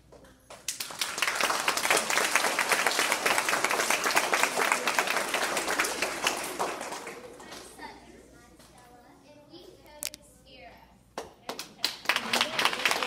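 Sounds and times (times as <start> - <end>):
audience applauding: 0.7 - 7.8, 12.0 - 13.0.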